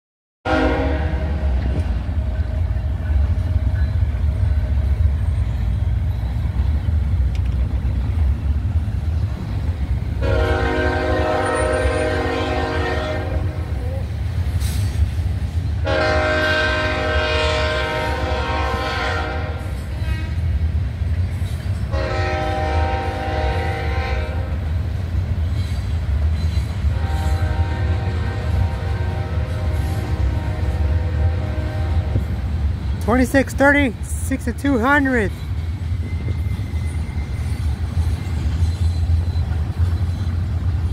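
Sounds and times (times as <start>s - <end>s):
locomotive air horn: 0.4s - 1.6s, 10.2s - 13.8s, 15.8s - 20.5s, 21.9s - 24.6s, 26.9s - 32.4s
passing train rumble: 0.4s - 40.9s.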